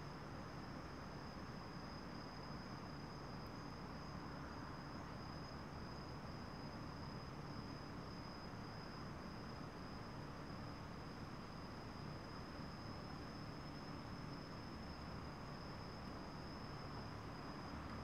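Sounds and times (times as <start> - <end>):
crickets chirping: 0.0 - 18.0.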